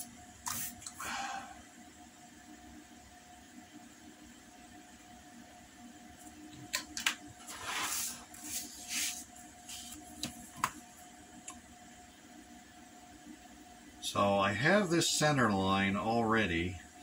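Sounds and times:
stiff paper sliding on a mat: 7.4 - 10.2.

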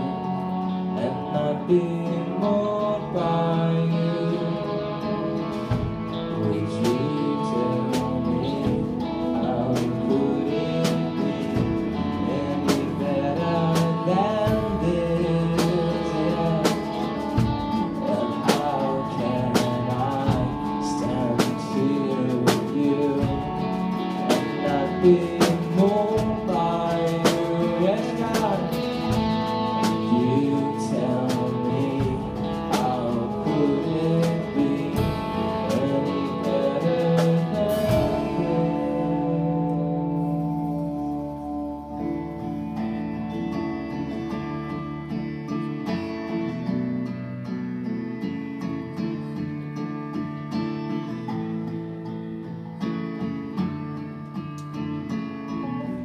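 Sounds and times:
person singing: 0.0 - 46.7, 54.5 - 56.0
electric guitars: 0.0 - 56.0
drum kit beat: 5.3 - 43.4.

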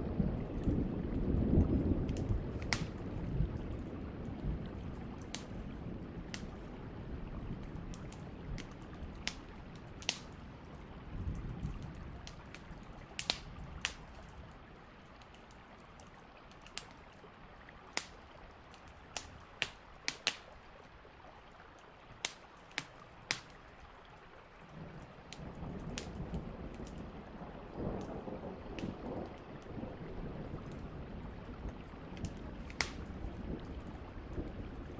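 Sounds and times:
sharp pops and ticks: 2.1 - 3.0, 5.2 - 5.6, 6.3 - 6.6, 7.9 - 10.4, 12.2 - 14.2, 16.5 - 17.0, 17.9 - 20.5, 22.2 - 23.6, 25.3 - 26.2, 32.2 - 33.2.

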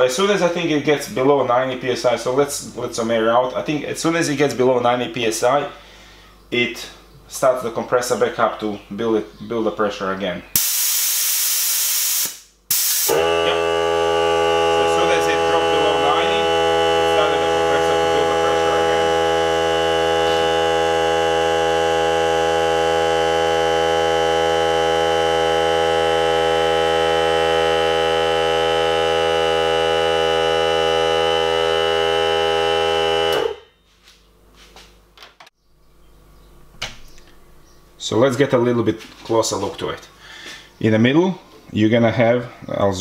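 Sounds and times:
air compressor motor running: 10.6 - 33.6.

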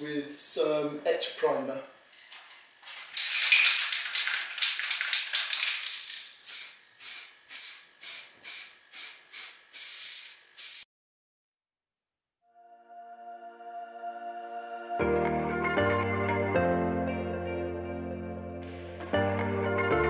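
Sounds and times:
aerosol can being shaken: 2.8 - 10.9
aerosol spray hissing: 5.7 - 10.9.

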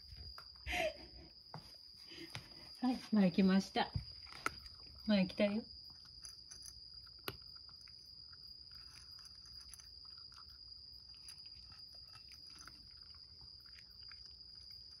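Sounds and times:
cat chewing dry kibble: 4.1 - 5.0, 5.7 - 15.0.

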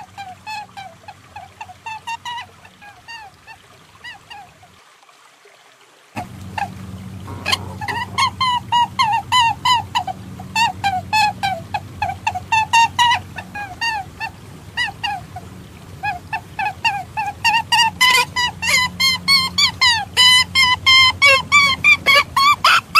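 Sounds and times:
squeaky animal calls: 6.2 - 15.4, 16.0 - 22.9
low steady hum: 6.2 - 22.9.

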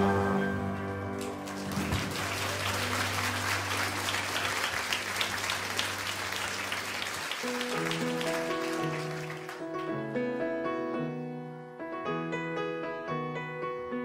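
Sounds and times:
music: 0.0 - 14.0
audience applauding: 1.1 - 10.0.

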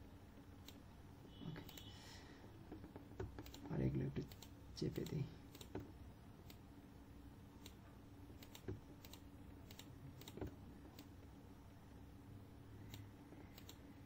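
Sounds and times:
low steady hum: 0.0 - 14.0
mouse and keyboard clicks: 2.7 - 6.6, 8.4 - 11.1, 12.9 - 13.8.

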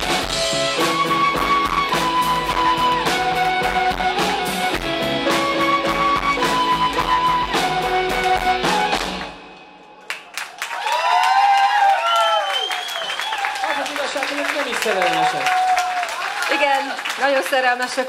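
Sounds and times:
live rock band playing: 0.0 - 9.6.

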